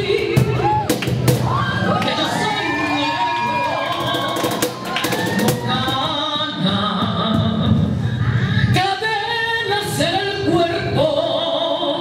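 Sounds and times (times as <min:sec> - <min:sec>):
woman singing into a microphone: 0:00.0 - 0:00.9, 0:01.8 - 0:12.0
cajon drumming: 0:00.0 - 0:01.8, 0:03.6 - 0:07.6.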